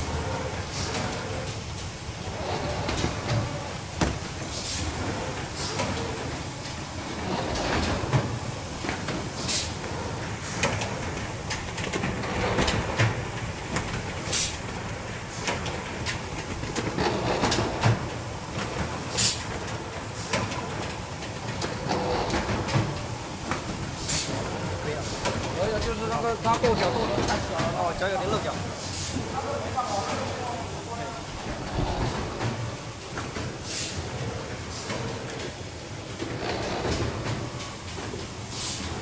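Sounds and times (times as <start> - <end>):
machine clattering and clicking: 0.0 - 39.0
pneumatic air hiss: 4.5 - 4.9, 9.4 - 9.7, 14.3 - 14.6, 19.1 - 19.4, 33.6 - 34.0, 38.5 - 38.9.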